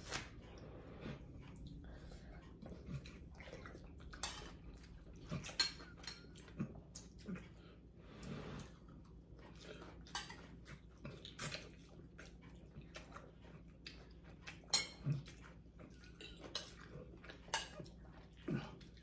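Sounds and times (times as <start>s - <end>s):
noodles slurped and chewed: 0.4s - 19.0s
metal spoons clinking on bowls: 4.2s - 4.7s, 5.4s - 6.5s, 14.7s - 15.2s, 16.0s - 17.9s.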